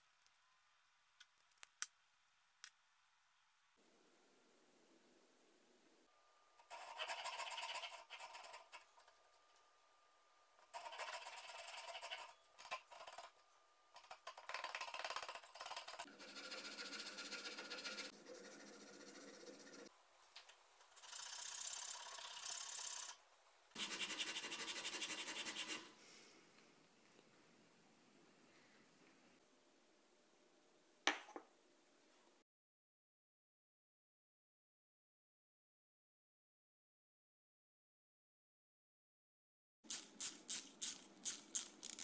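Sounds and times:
sandpaper rubbing wood: 16.1s - 19.9s, 23.8s - 25.9s.

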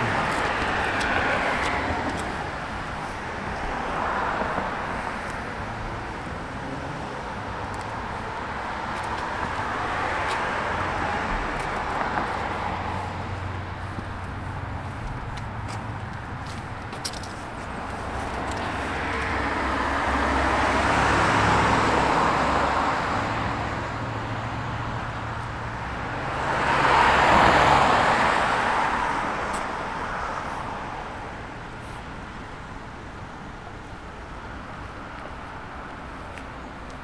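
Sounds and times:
cars passing: 0.0s - 37.0s.

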